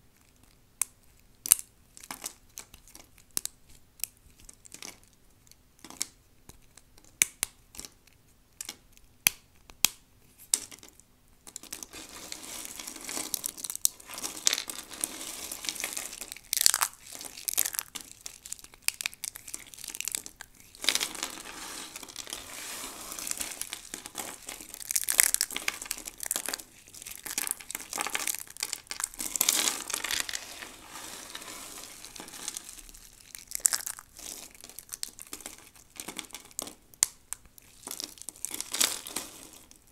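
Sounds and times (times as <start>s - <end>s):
dry soap crunching: 11.5s - 39.9s.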